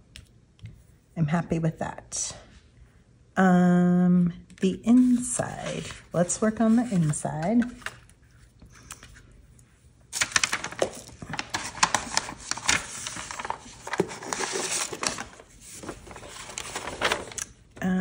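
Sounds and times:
paper and plastic sheets rustling: 0:04.9 - 0:08.4, 0:10.1 - 0:17.8.

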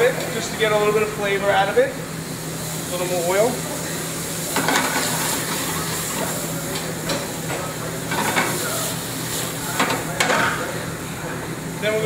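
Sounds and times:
vegetables sizzling in oil: 0:00.0 - 0:12.0.

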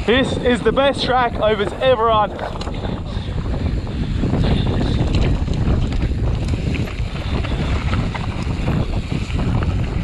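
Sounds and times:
wind buffeting microphone: 0:00.0 - 0:10.0
small clicks and rattles: 0:04.9 - 0:08.8.

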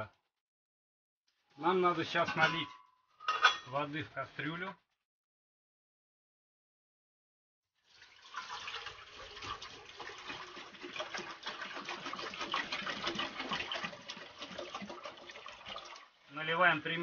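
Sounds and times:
water pouring into pot: 0:07.8 - 0:17.0.

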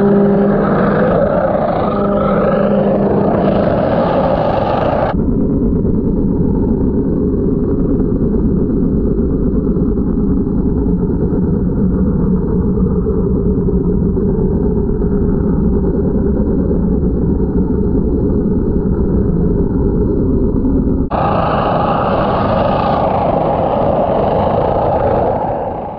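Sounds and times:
underwater pressure washer rumble: 0:00.0 - 0:05.2, 0:21.1 - 0:25.9.

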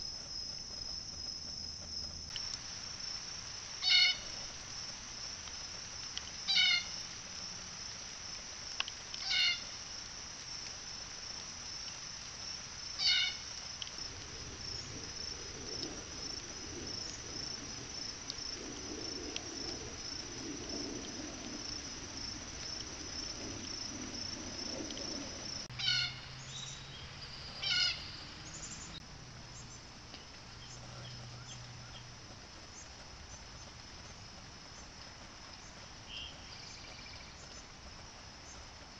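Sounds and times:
insect chorus buzzing: 0:00.0 - 0:38.9
loud short animal calls: 0:03.8 - 0:04.3, 0:06.5 - 0:07.0, 0:09.2 - 0:09.6, 0:13.0 - 0:13.4, 0:25.8 - 0:26.2, 0:27.6 - 0:28.0.

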